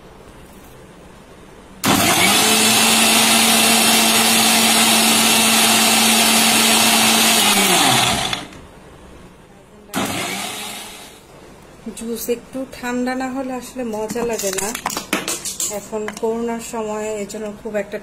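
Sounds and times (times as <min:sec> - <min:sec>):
electric blender motor running: 0:01.8 - 0:08.6, 0:10.0 - 0:11.2.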